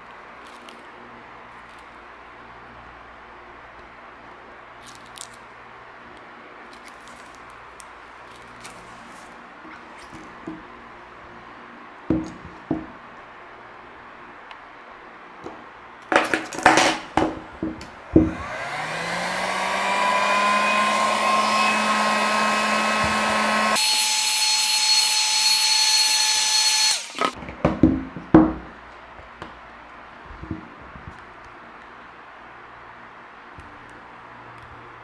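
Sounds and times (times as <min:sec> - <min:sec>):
heat gun fan whining: 0:16.7 - 0:27.4.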